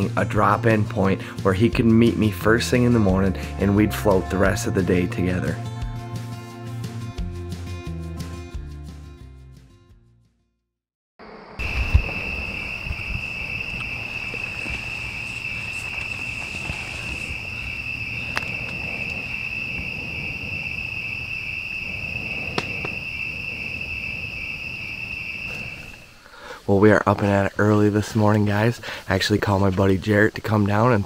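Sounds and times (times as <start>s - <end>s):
night insects chorus: 11.2s - 31.0s
handling rumble: 11.6s - 26.2s.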